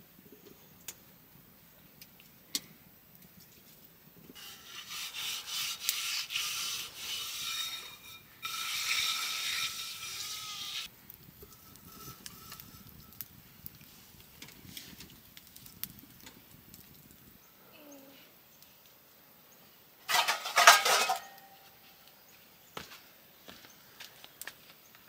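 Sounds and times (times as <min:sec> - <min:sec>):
rough rubbing or scraping: 0:04.4 - 0:13.2, 0:20.1 - 0:21.4.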